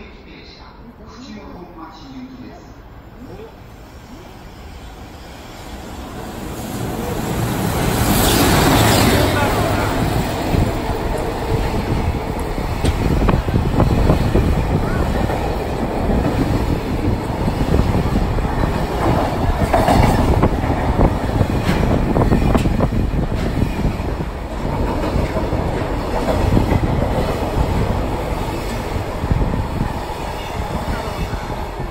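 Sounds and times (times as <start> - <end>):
freight train rumbling past: 0.0 - 31.9.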